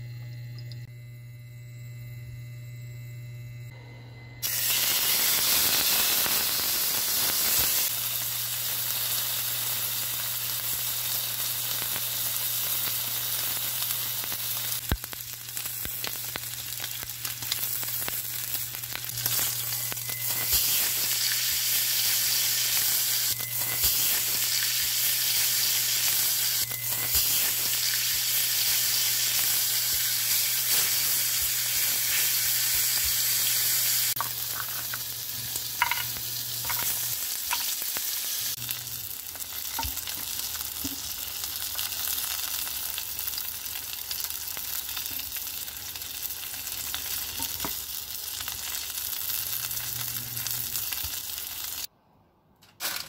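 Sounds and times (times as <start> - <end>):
steak sizzling in frying pan: 4.4 - 51.9
fat popping and crackling: 14.3 - 20.1.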